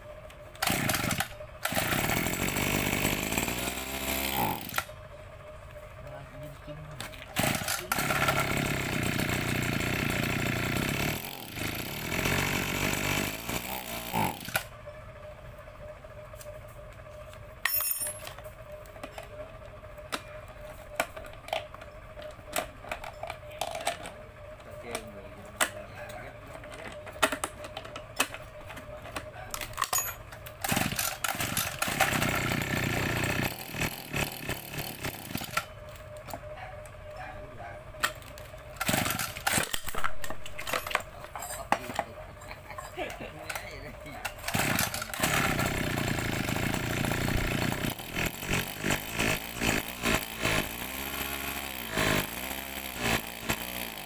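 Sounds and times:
metal tools clinking on engine casing: 17.6 - 18.4, 26.7 - 32.1, 38.8 - 45.2.

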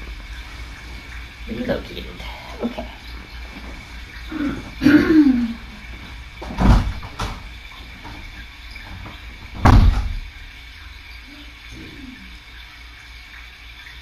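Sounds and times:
door shutting thuds: 6.4 - 10.3.

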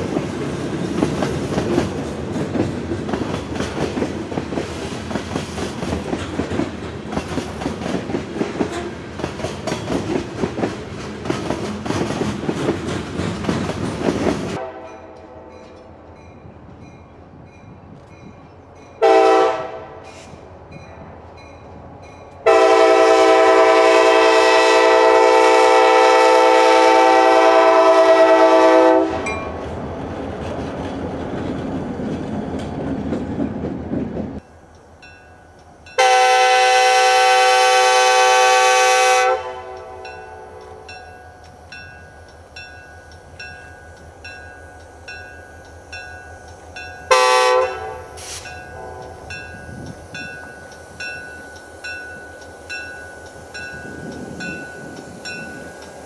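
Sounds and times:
train wheels clattering on rails: 0.0 - 19.4, 20.0 - 36.8, 39.5 - 56.0
locomotive air horn: 14.6 - 15.6, 19.0 - 20.4, 22.4 - 29.3, 36.0 - 40.9, 47.1 - 49.4.

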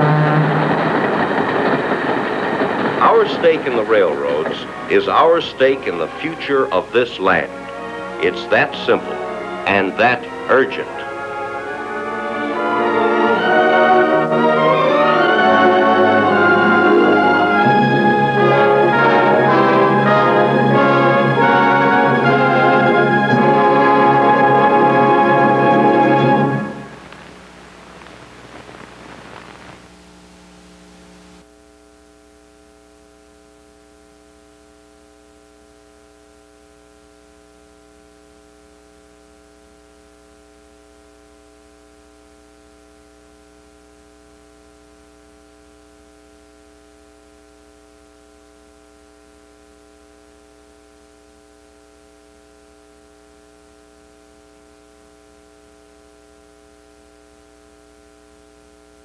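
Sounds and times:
orchestral music: 0.0 - 27.0
electrical hum: 0.0 - 59.0
tape hiss: 0.0 - 59.0.

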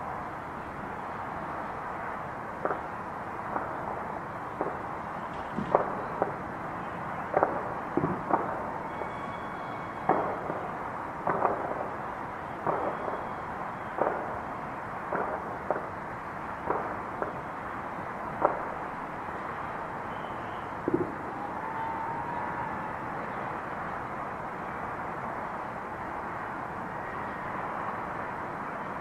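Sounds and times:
steady background hiss: 0.0 - 29.0
muffled firework bangs: 7.3 - 8.7, 10.1 - 12.0.

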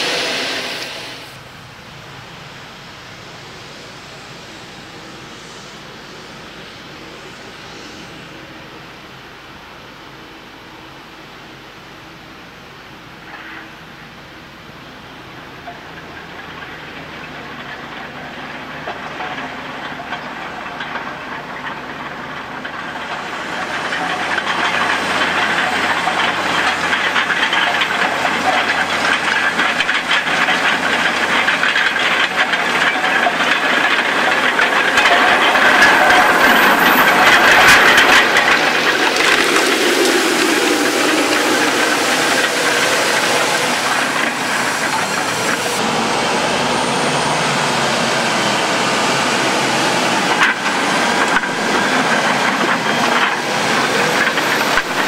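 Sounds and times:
roller working the soil: 0.0 - 55.0
tractor engine: 0.0 - 55.0.

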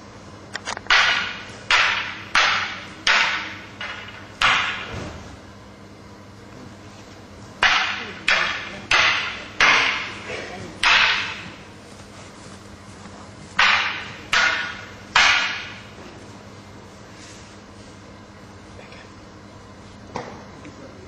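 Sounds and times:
wooden weapons clacking: 0.8 - 4.9, 7.6 - 11.6, 13.6 - 15.9.

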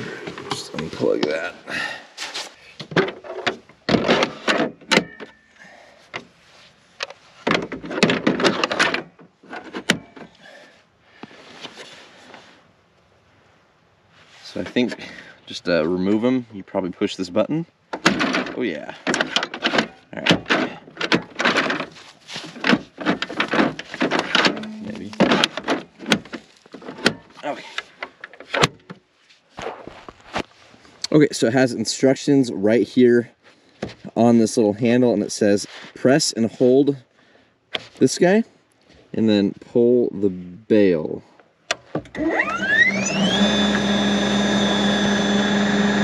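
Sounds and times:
plastic battery pack clunking: 17.9 - 29.0.

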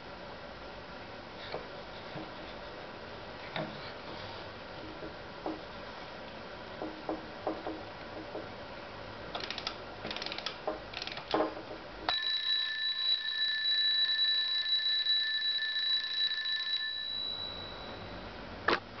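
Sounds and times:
alarm clock bell ringing: 12.1 - 18.3.

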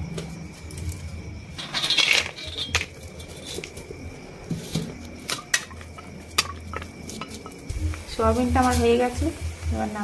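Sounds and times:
dry chunks rattling into a pan: 1.6 - 3.8.

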